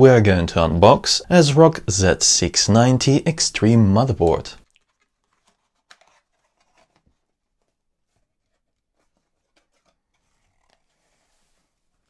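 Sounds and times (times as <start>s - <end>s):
light rustles of handling: 4.6s - 12.0s.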